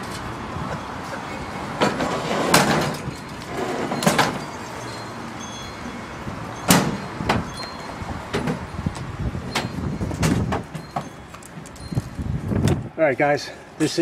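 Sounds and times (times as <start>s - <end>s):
tailgate slamming shut: 6.7s - 7.5s.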